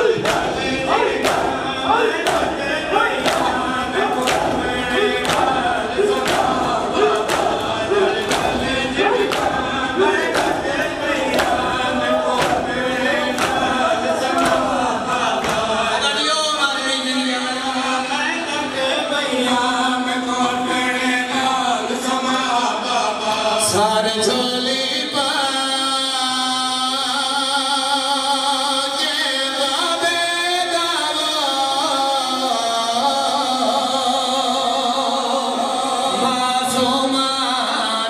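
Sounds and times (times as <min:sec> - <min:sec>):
men slapping their chests: 0:00.0 - 0:16.0
male chorus chanting: 0:00.0 - 0:38.0.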